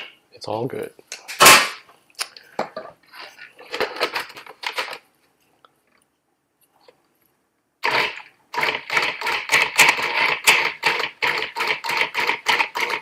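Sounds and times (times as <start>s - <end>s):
food processor motor pulsing: 7.8s - 13.0s.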